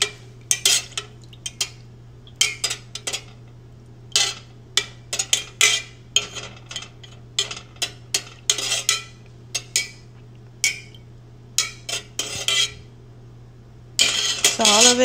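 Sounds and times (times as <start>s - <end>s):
metal spoon scraping metal pot: 0.5s - 1.0s, 4.1s - 4.5s, 5.1s - 9.9s, 11.6s - 12.9s, 14.0s - 15.0s.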